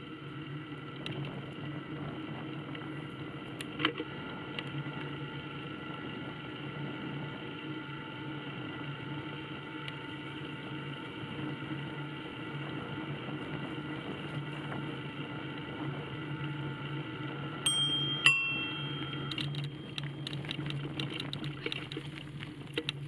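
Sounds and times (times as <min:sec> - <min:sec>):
steady hum with fixed tones: 0:16.3 - 0:22.2
bicycle bell ringing: 0:17.7 - 0:20.4
rapid clicks: 0:19.2 - 0:23.0.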